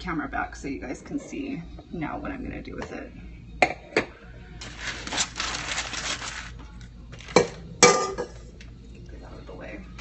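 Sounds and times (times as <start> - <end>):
crinkling rustling: 4.6 - 7.6.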